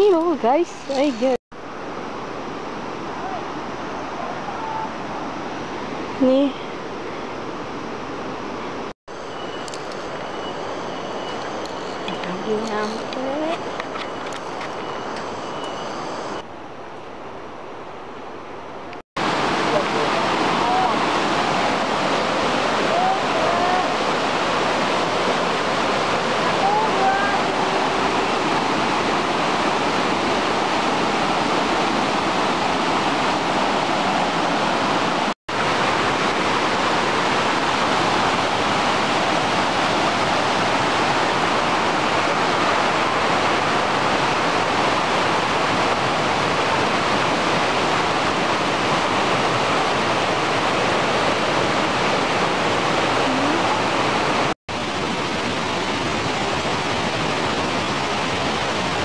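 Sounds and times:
river rushing over rocks: 0:19.2 - 0:59.0.

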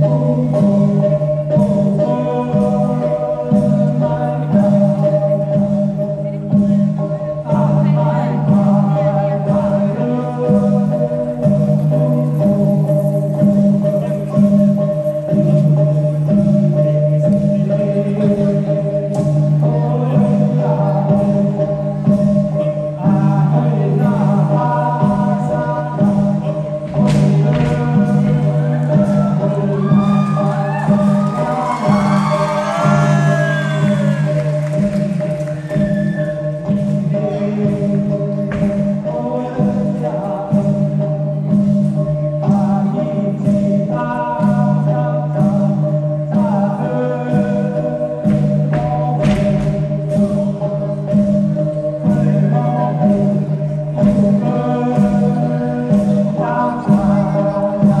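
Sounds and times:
low pulsing accompaniment: 0:00.0 - 0:58.0
group singing: 0:23.0 - 0:41.1, 0:46.3 - 0:49.7, 0:54.0 - 0:58.0.

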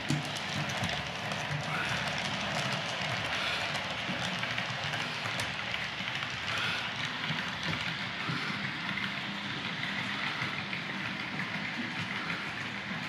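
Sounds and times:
model train wheels rumbling: 0:00.0 - 0:13.0.

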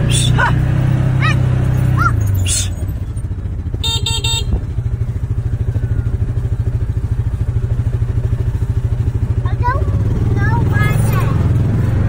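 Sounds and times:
small engine idling: 0:00.0 - 0:12.0
vehicle horn beeps: 0:03.7 - 0:05.0.

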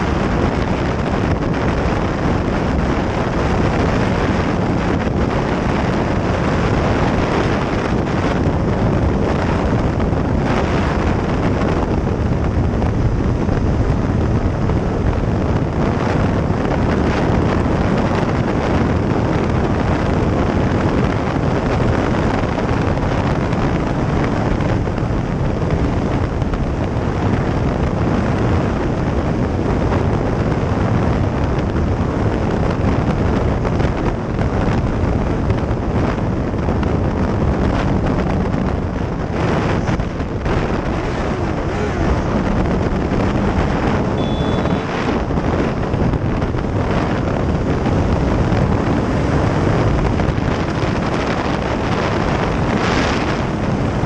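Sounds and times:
wind rushing on microphone: 0:00.0 - 0:54.0
motorcycle engine running: 0:28.2 - 0:54.0.

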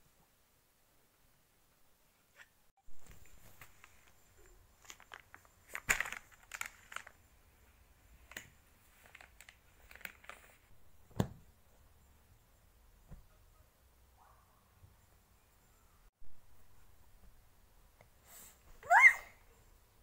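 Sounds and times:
plastic packaging crinkling: 0:03.1 - 0:07.3, 0:08.2 - 0:10.6
thump: 0:11.1 - 0:11.4.

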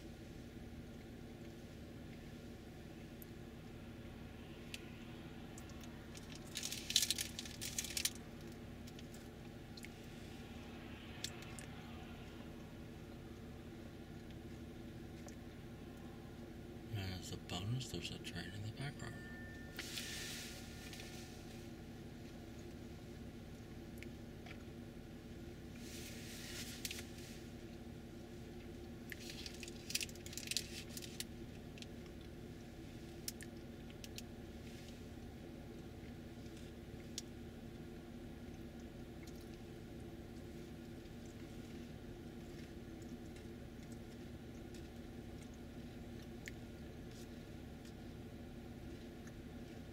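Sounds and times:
combine harvester drone: 0:00.0 - 0:23.5
distant engines droning: 0:00.0 - 0:49.9
light clicks and crackles: 0:05.6 - 0:10.0, 0:25.8 - 0:27.3, 0:29.0 - 0:32.4, 0:36.0 - 0:37.4, 0:38.5 - 0:48.1
crackling and rustling on microphone: 0:05.6 - 0:10.3, 0:25.8 - 0:27.7.

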